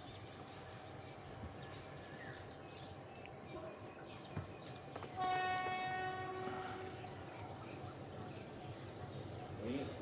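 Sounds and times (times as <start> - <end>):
locomotive horn blast: 5.1 - 7.0.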